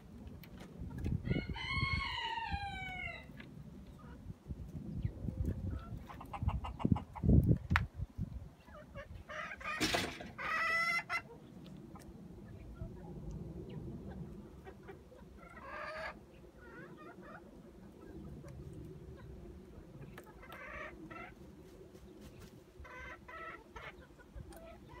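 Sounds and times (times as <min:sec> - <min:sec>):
hens clucking: 0:05.3 - 0:07.6, 0:08.5 - 0:13.1, 0:14.0 - 0:25.0.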